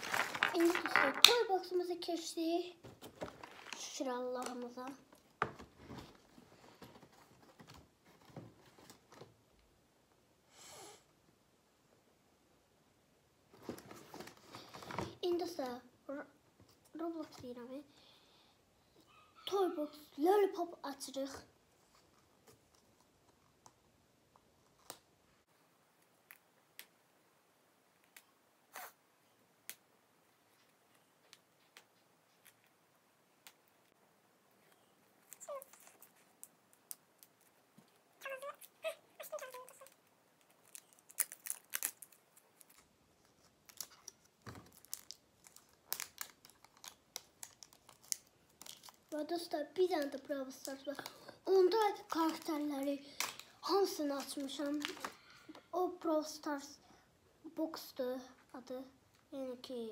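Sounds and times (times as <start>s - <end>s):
candy package crinkling: 0.0s - 1.5s, 35.2s - 55.3s.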